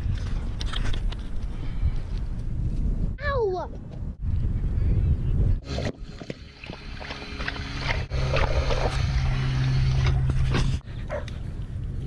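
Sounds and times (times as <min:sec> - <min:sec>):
drinking fountain low hum: 0:05.6 - 0:10.3.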